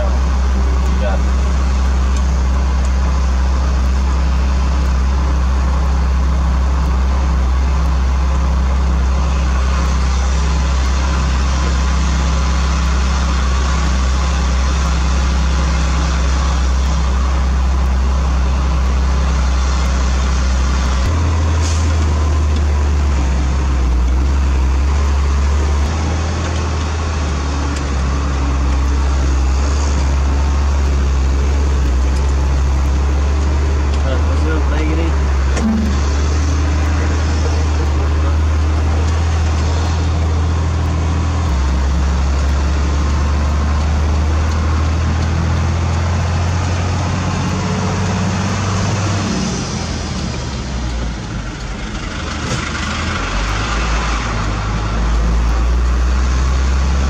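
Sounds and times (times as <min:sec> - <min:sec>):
heavy diesel engine running: 0:00.0 - 0:57.0.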